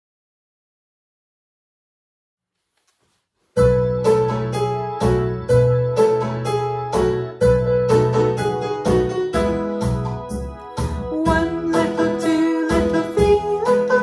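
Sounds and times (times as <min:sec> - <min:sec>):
piano melody: 0:03.6 - 0:14.0.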